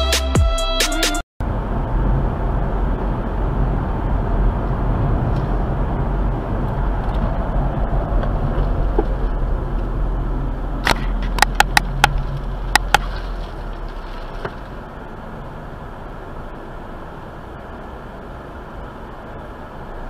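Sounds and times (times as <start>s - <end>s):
car road and engine noise: 0.0s - 20.0s.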